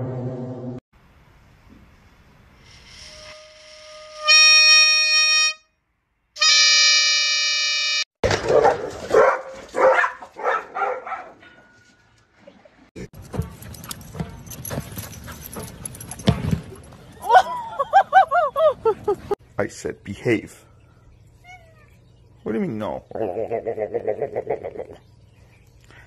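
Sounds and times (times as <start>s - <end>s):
toy fan horn buzzing honks: 3.0s - 5.7s, 6.4s - 8.1s.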